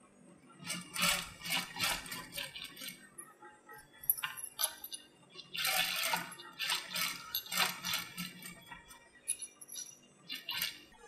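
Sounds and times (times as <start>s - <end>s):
sewing machine stitching: 0.6s - 3.0s, 4.2s - 9.0s, 10.3s - 11.0s.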